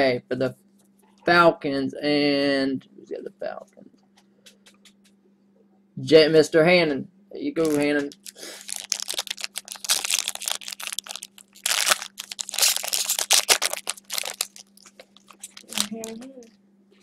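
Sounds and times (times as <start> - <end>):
faint low hum: 0.0 - 17.0
foil wrapper crinkling: 7.6 - 16.3.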